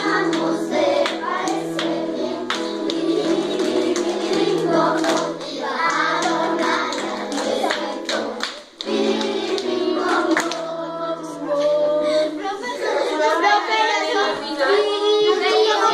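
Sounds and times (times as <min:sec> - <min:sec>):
children's choir singing: 0:00.0 - 0:15.9
hand claps: 0:00.3 - 0:10.6.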